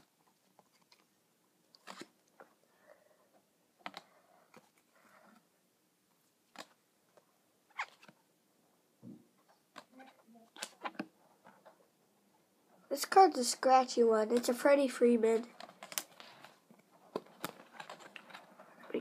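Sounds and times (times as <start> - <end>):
cards snapping: 1.8 - 2.2, 10.5 - 11.1, 15.6 - 16.3.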